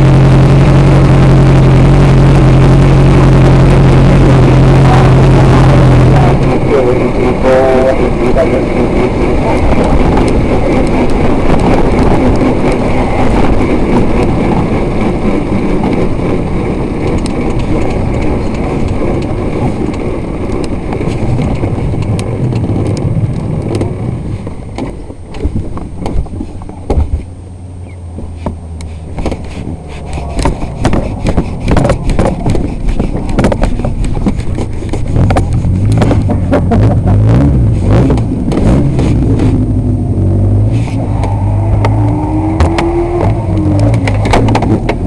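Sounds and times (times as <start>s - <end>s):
racing car engine: 0.0s - 45.0s
road and wind noise: 0.0s - 45.0s
knocks and rattles: 28.2s - 39.6s, 41.2s - 45.0s.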